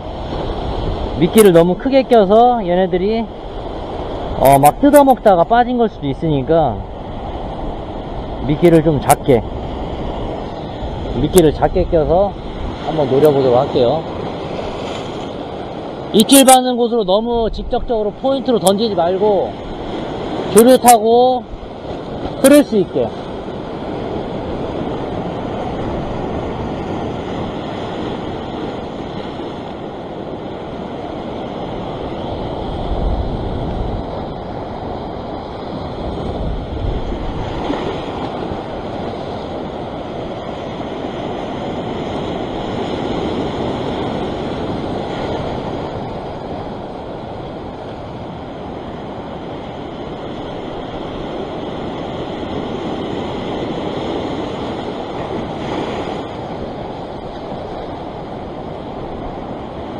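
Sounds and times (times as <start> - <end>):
wind buffeting microphone: 0.0 - 16.4, 21.3 - 59.9
surf breaking on rocks: 17.9 - 59.9.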